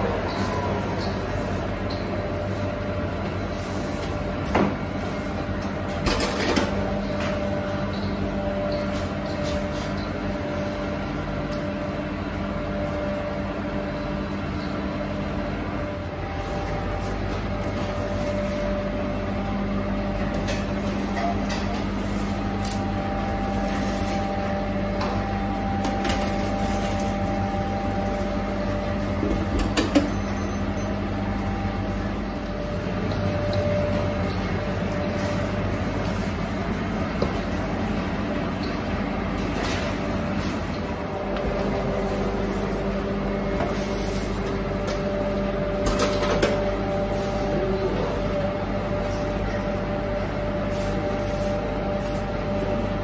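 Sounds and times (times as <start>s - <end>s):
machinery humming: 0.0s - 53.0s.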